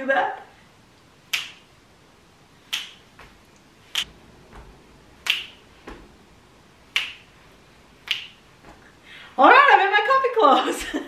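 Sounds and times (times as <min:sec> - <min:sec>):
finger snaps: 0:01.3 - 0:01.7, 0:02.7 - 0:03.0, 0:05.2 - 0:05.5, 0:06.9 - 0:07.2, 0:08.0 - 0:08.4.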